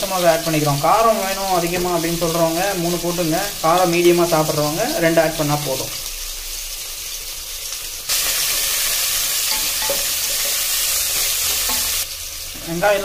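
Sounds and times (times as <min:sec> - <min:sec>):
onions sizzling in hot oil: 0:00.0 - 0:13.0
spatula stirring in a pot: 0:08.1 - 0:12.1.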